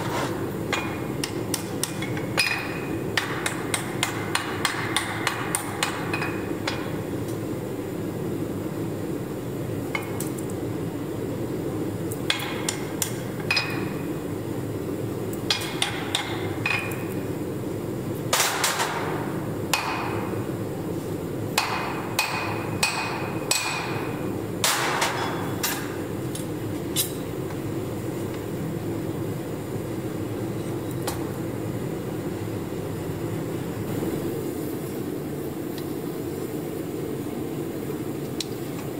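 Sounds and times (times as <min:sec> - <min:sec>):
hammer striking steel on anvil: 0:00.7 - 0:07.0, 0:15.5 - 0:17.2, 0:18.3 - 0:20.3, 0:21.6 - 0:26.0.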